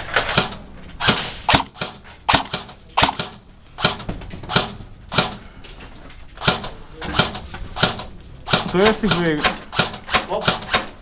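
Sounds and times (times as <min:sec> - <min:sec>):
airsoft gun shots: 0:00.2 - 0:05.4.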